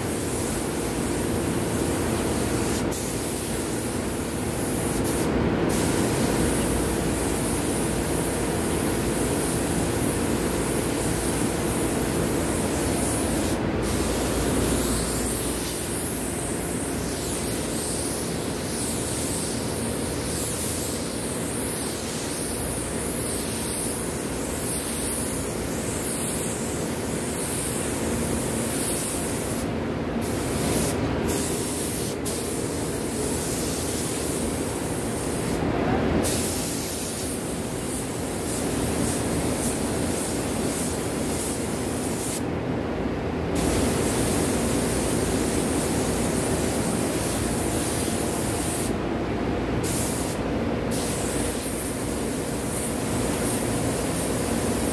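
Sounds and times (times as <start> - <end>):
spray guns hissing: 0.0 - 29.7, 30.3 - 35.6, 49.8 - 54.9.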